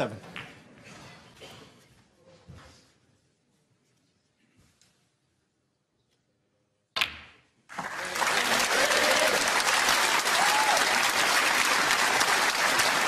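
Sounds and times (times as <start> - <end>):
crowd applauding: 7.7 - 13.0.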